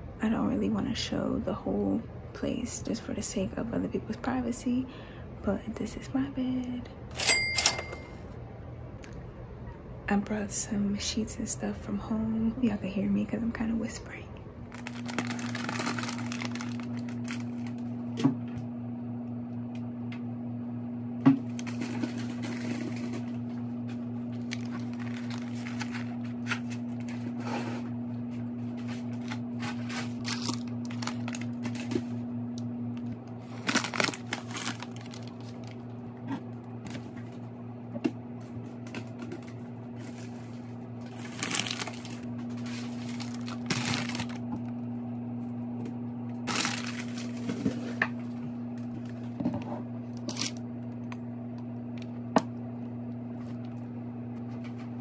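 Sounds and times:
steady low hum: 0:00.0 - 0:55.0
plastic packaging crinkling: 0:14.7 - 0:18.0, 0:21.5 - 0:27.2, 0:28.8 - 0:32.2, 0:33.0 - 0:36.0, 0:40.0 - 0:44.7, 0:46.4 - 0:48.0, 0:50.1 - 0:50.6.

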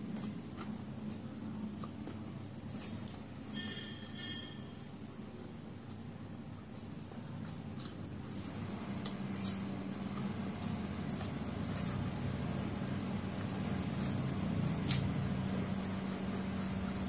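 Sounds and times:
chewing food: 0:00.1 - 0:03.2, 0:07.4 - 0:16.8.

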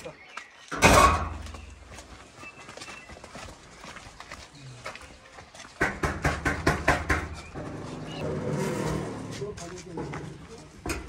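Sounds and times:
footsteps on dirt: 0:00.0 - 0:11.0
knocking on sheet-metal gate: 0:05.8 - 0:07.4.

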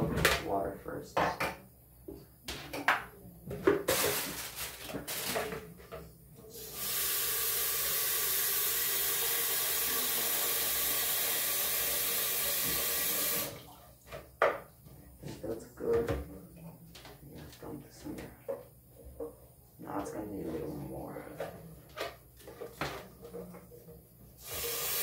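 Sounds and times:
faucet running into container: 0:06.6 - 0:13.6, 0:24.4 - 0:25.0.

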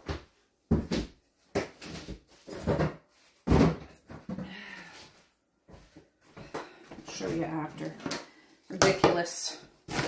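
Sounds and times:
household knocks and bangs: 0:02.5 - 0:04.5.

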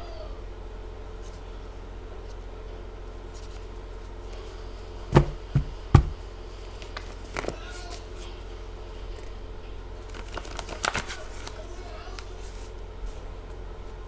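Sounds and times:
steady low hum: 0:00.0 - 0:14.0
knocks on tabletop: 0:05.2 - 0:06.2.

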